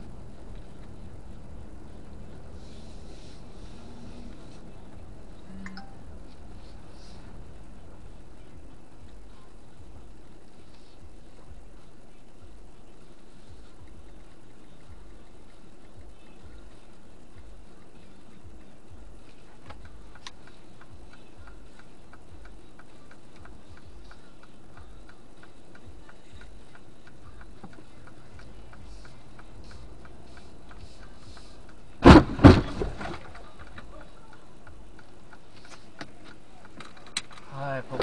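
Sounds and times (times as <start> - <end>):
turn signal ticking: 7.3 - 32.0, 33.4 - 38.0.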